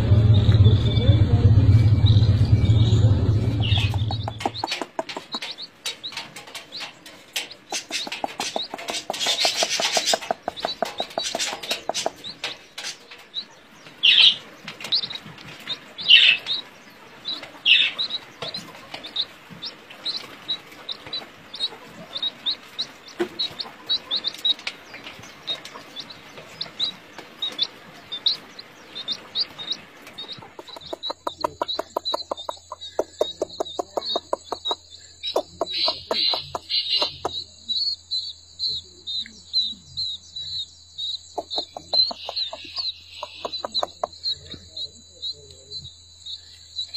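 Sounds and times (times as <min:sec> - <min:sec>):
low hum: 0:00.0 - 0:31.6
fast even pulsing: 0:00.0 - 0:37.4
chicks peeping: 0:00.0 - 0:46.9.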